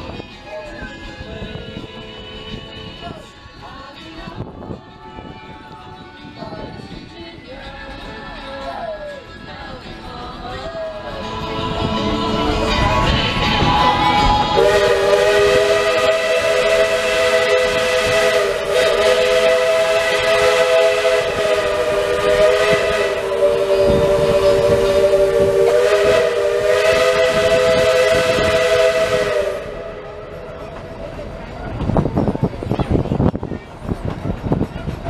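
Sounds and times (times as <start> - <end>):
steam locomotive chime whistle: 11.1 - 30.6.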